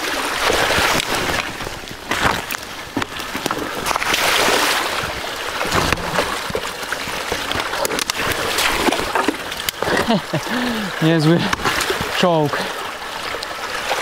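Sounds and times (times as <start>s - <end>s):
bike splashing through water: 0.0s - 14.0s.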